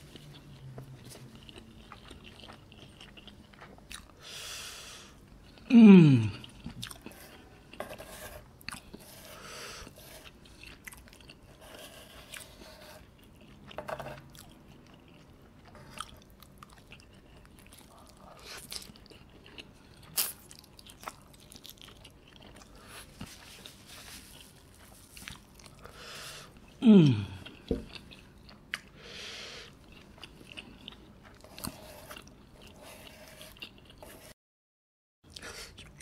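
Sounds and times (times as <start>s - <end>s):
wet chewing: 0.1s - 4.2s, 6.3s - 7.7s, 12.2s - 26.8s, 29.6s - 34.4s.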